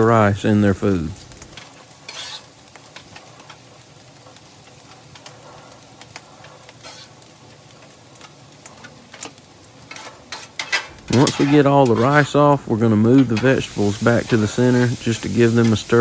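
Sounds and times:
vegetables sizzling on a griddle: 0.0s - 16.0s
metal spatula scraping griddle: 1.5s - 3.6s, 6.7s - 7.3s, 9.8s - 16.0s.

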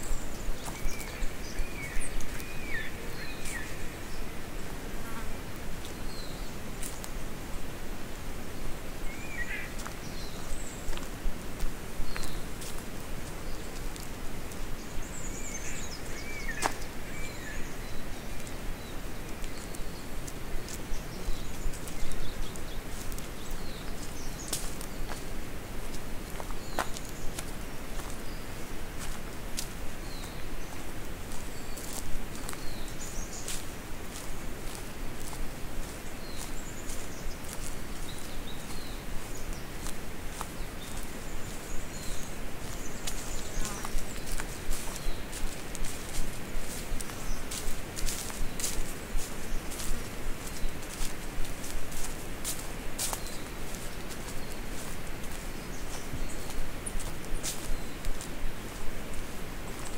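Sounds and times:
footsteps on dry leaves: 0.0s - 7.4s, 9.1s - 59.9s
birds calling: 9.0s - 11.0s, 26.3s - 59.9s.

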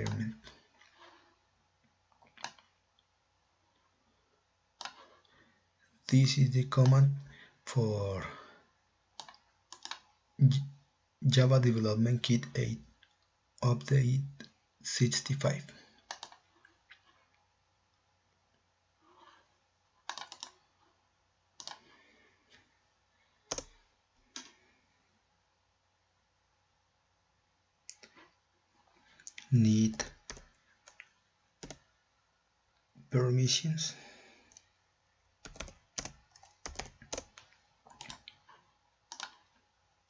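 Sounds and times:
mouse and keyboard clicking: 2.3s - 2.7s, 4.8s - 5.1s, 9.2s - 10.1s, 16.0s - 16.4s, 20.0s - 20.6s, 21.6s - 21.8s, 23.5s - 24.5s, 31.6s - 31.8s, 35.4s - 38.4s, 39.1s - 39.5s.

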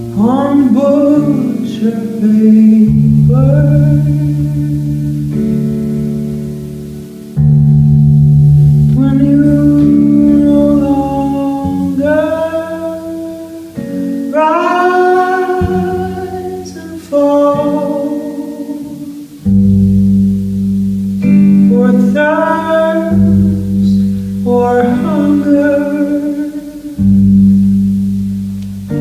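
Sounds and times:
acoustic guitar: 0.0s - 29.0s
woman singing: 0.2s - 5.4s, 8.9s - 19.4s, 21.5s - 27.2s.

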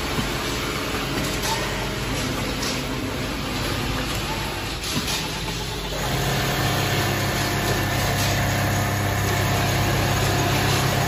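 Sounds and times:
sewing machine running: 5.5s - 11.0s.

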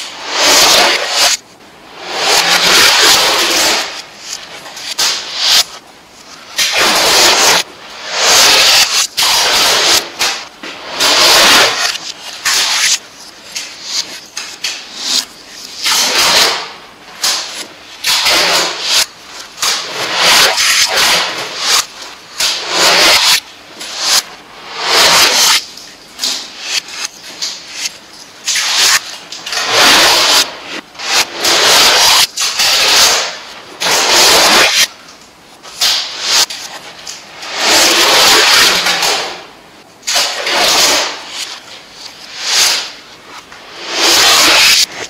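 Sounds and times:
adhesive tape tearing off roll: 11.0s - 13.0s.

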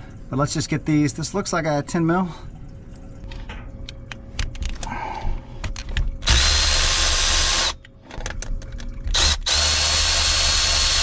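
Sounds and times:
power tool high whine: 9.2s - 11.0s.

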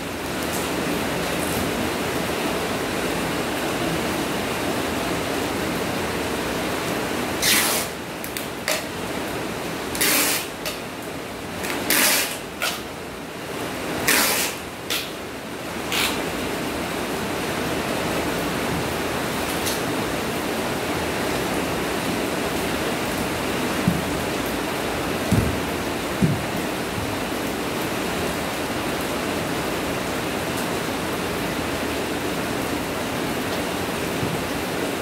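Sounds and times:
steady background hiss: 0.0s - 35.0s
packing tape pulled off roll: 7.4s - 8.9s, 9.9s - 10.8s, 11.6s - 12.8s, 14.0s - 15.1s, 15.9s - 16.2s.

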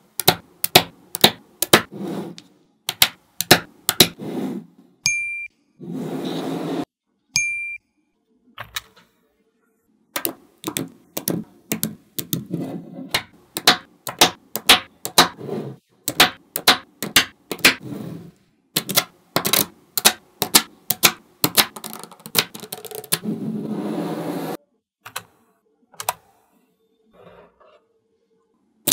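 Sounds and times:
magnetic balls clicking: 18.8s - 23.2s.

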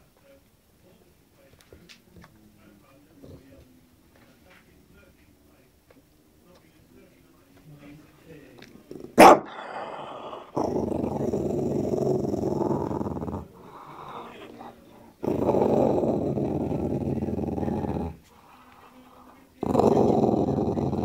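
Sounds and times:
puppy growling: 8.8s - 18.5s, 19.6s - 21.0s.

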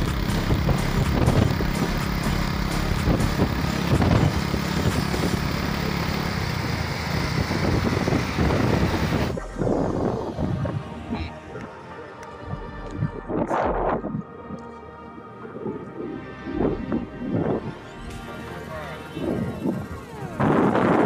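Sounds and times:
small motorcycle engine running: 0.0s - 10.8s, 17.4s - 21.0s
road and wind noise: 0.0s - 21.0s.

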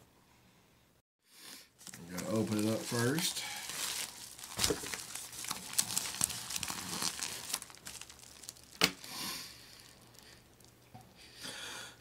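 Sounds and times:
package crinkling and crackling: 1.8s - 10.8s.

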